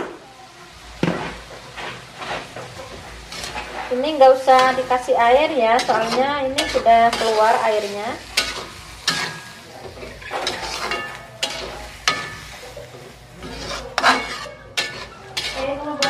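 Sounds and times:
food sizzling: 0:00.0 - 0:16.0
spatula scraping metal wok: 0:01.2 - 0:16.0.

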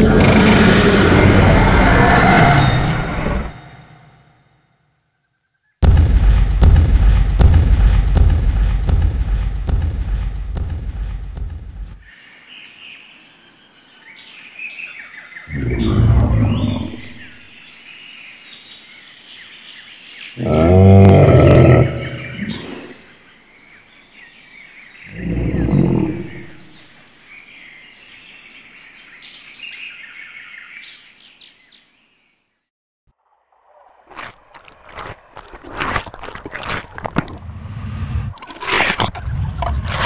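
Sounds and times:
dinosaur roars: 0:00.0 - 0:03.8, 0:15.5 - 0:17.4, 0:20.4 - 0:23.0, 0:25.1 - 0:26.6.

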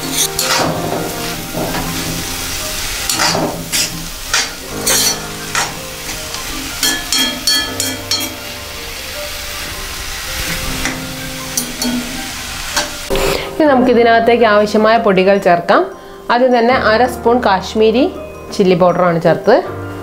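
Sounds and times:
spatula scraping pan: 0:00.0 - 0:08.4
onions sizzling in oil: 0:00.0 - 0:20.0.

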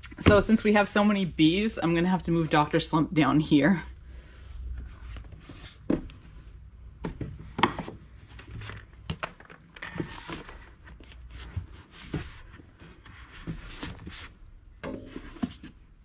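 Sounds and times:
book covers rubbing and sliding: 0:04.7 - 0:06.6, 0:10.0 - 0:14.4.

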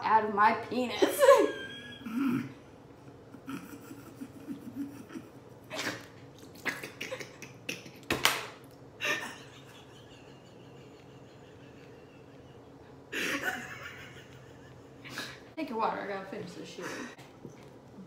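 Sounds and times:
stifled laughter: 0:01.1 - 0:08.1, 0:09.0 - 0:15.4.

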